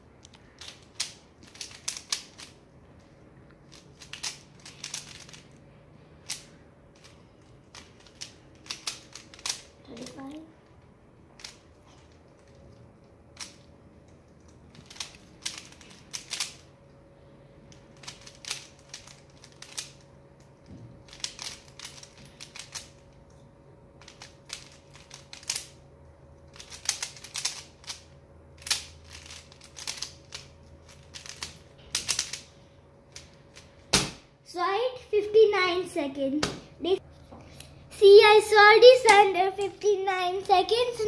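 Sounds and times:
faint steady hum: 0.0 - 41.0
puzzle cube clicking: 0.6 - 2.5, 3.7 - 5.4, 7.7 - 10.1, 14.8 - 16.6, 28.6 - 32.4.

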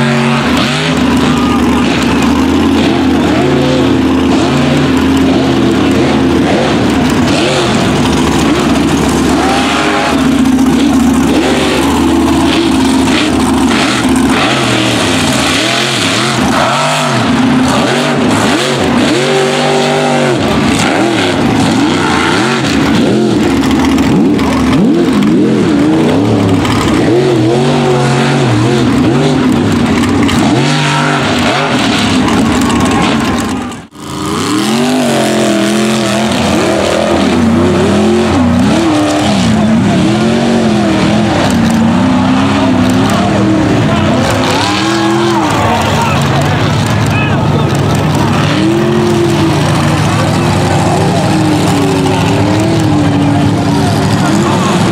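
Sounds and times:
truck engines revving hard: 0.0 - 54.9.

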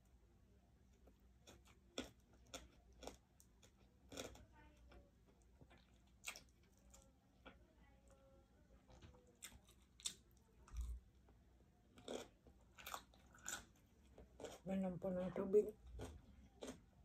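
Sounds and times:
low room hum: 0.0 - 17.0
soft chewing: 0.0 - 17.0.

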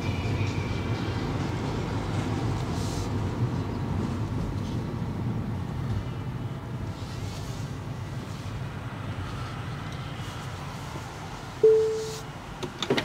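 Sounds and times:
road rumble: 0.0 - 13.0
car chime: 11.6 - 12.2.

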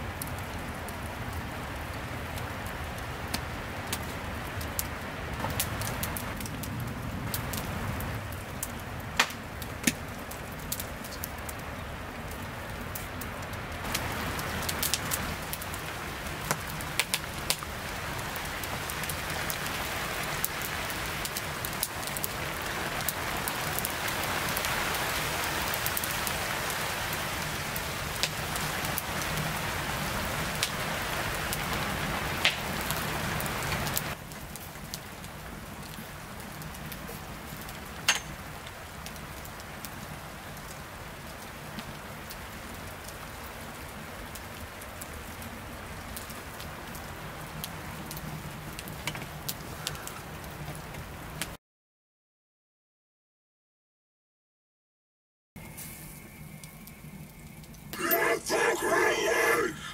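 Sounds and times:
rain hissing: 0.0 - 38.0, 55.6 - 59.9
log fire crackling: 0.0 - 51.6, 55.6 - 59.9.

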